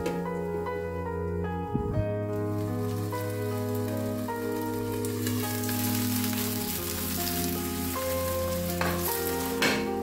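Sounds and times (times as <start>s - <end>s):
background music of sustained notes: 0.0s - 10.0s
potato slices sizzling in oil: 2.3s - 10.0s.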